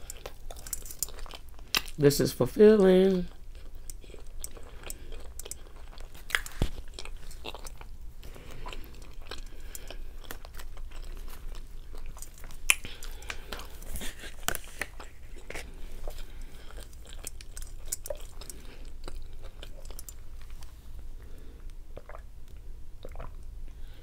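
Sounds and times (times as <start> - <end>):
person chewing food: 0.0 - 2.0, 3.2 - 24.0
sharp clicks and crunches: 0.0 - 2.0, 16.8 - 20.7.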